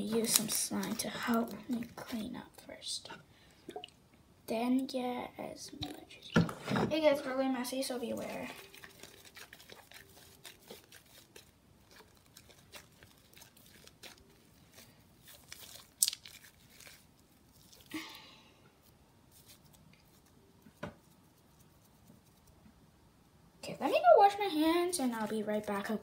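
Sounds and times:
sticky slime crackles and clicks: 15.3s - 17.0s.

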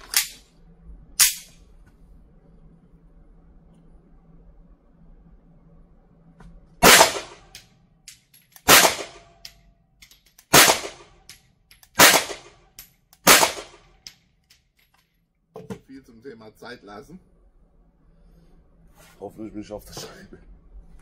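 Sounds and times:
pistol shots with echo: 6.8s - 7.4s, 8.7s - 9.2s, 10.5s - 11.1s, 12.0s - 12.6s, 13.2s - 13.8s.

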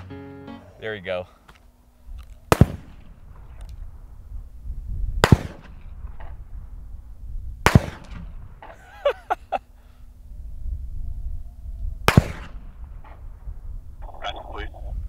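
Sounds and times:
supersonic bullet cracks: 2.3s - 3.9s, 5.2s - 6.5s, 7.6s - 8.8s, 12.0s - 13.4s.

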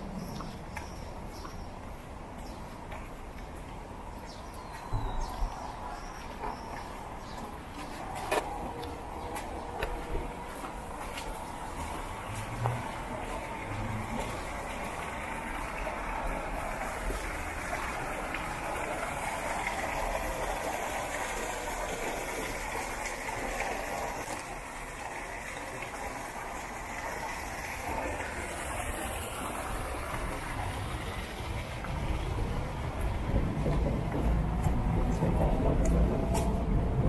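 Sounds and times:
water pouring into a pond: 11.2s - 33.3s.

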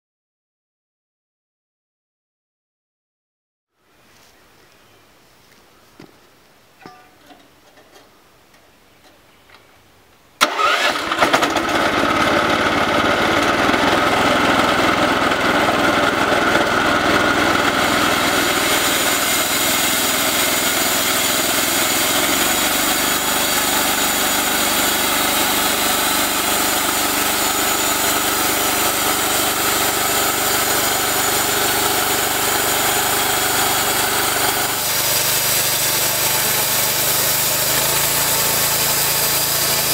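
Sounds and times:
small gasoline engine running: 10.4s - 39.9s.

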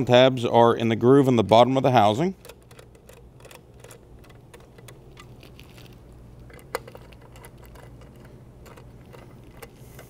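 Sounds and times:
low steady hum: 0.0s - 10.0s
screwdriver clicking and scraping: 2.4s - 10.0s.

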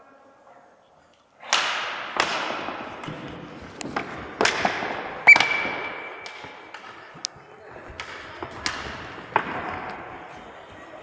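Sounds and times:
hockey sticks striking ball: 1.5s - 10.5s.

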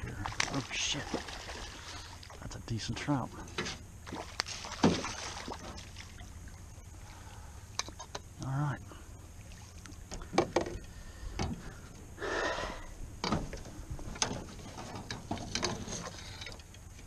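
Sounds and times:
water splash: 0.0s - 2.4s, 4.0s - 6.6s
knocks and clatter against hull: 10.0s - 11.7s, 13.2s - 17.0s.

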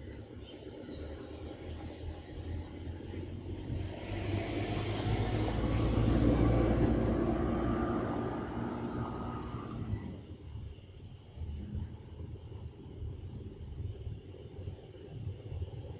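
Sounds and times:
aircraft passing overhead: 1.9s - 10.5s.

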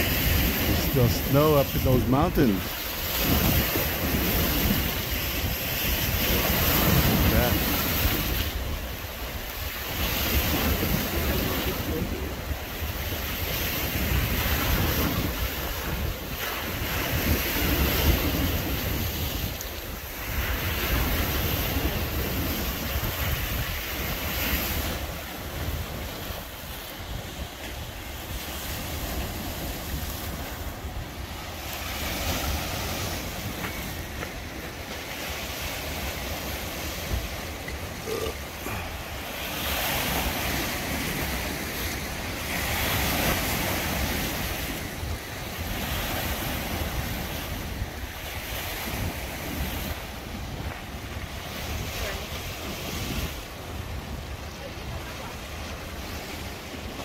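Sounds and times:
waves breaking on rocky shore: 0.0s - 57.0s
wind buffeting microphone: 0.0s - 57.0s.

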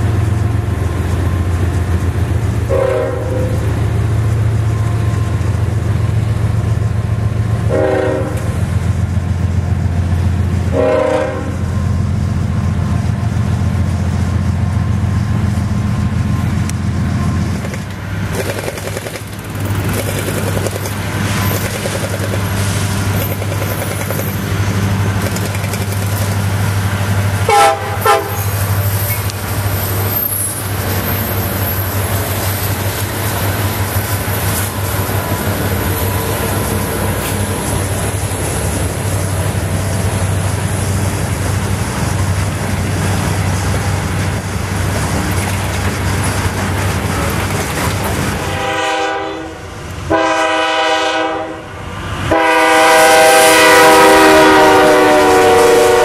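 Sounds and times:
freight train rumbling past: 0.0s - 56.0s
locomotive horn toots: 2.7s - 3.7s, 7.7s - 8.6s, 10.7s - 11.7s, 27.4s - 29.3s, 48.4s - 56.0s.

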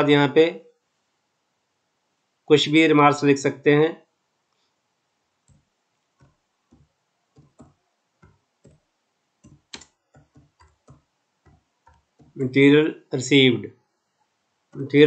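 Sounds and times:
computer keyboard keystrokes: 9.4s - 12.4s.

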